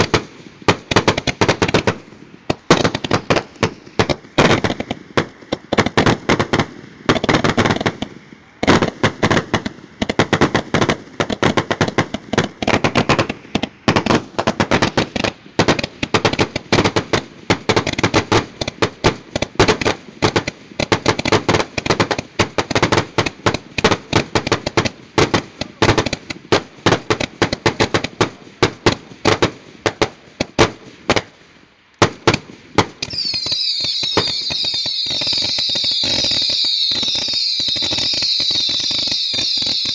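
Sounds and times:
fireworks popping and banging: 0:00.0 - 0:31.4, 0:32.0 - 0:39.9.

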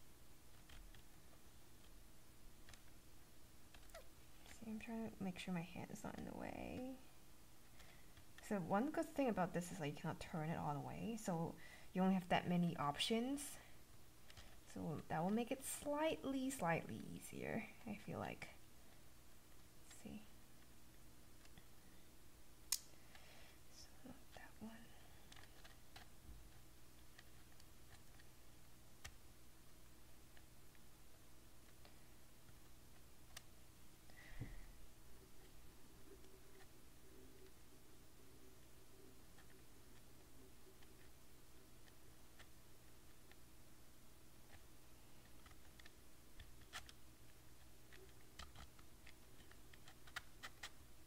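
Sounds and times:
faint room hum: 0:00.0 - 0:51.0
wooden puzzle pieces clicking: 0:47.6 - 0:50.8.

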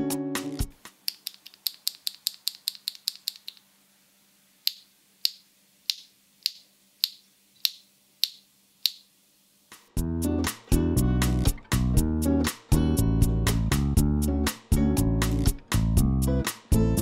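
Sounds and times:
keyboard switch clicking: 0:01.0 - 0:03.6, 0:04.7 - 0:09.0.

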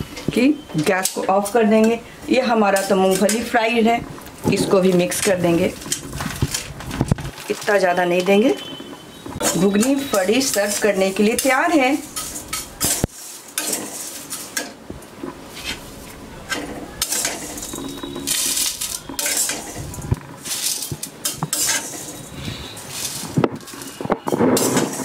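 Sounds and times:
metal spatula scraping pan: 0:00.8 - 0:03.8, 0:08.7 - 0:14.8, 0:15.5 - 0:25.0.

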